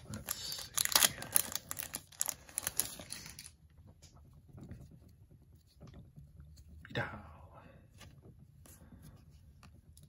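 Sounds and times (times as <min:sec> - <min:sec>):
foil wrapper crinkling: 0:00.0 - 0:03.6.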